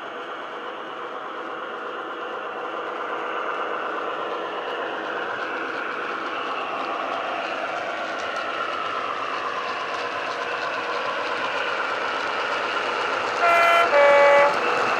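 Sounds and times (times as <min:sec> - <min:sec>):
diesel engine sound from small speaker: 0:13.4 - 0:14.9.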